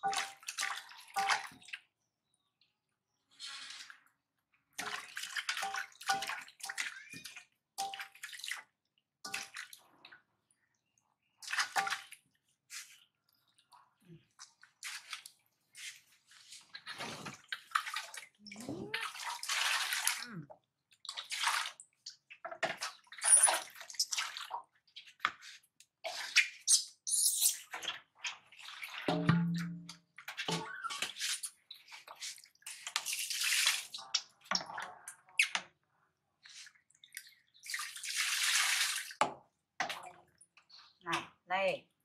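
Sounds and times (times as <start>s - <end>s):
water splashing in a metal basin: 0.0s - 1.9s, 4.7s - 10.4s, 11.3s - 12.6s, 16.4s - 35.8s, 36.7s - 41.4s.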